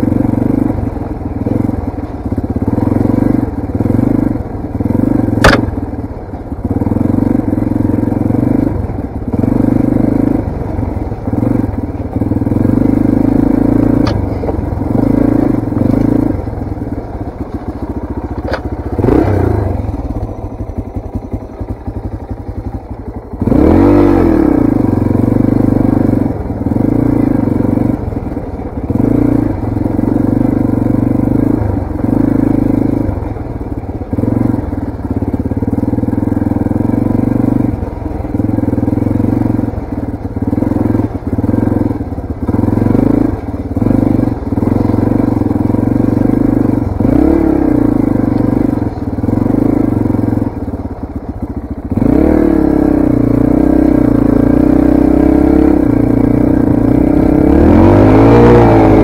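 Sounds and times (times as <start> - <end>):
dirt bike engine revving: 2.6 - 5.8, 6.7 - 22.7, 23.3 - 50.9, 51.8 - 59.0
sharp knock: 5.4 - 5.7.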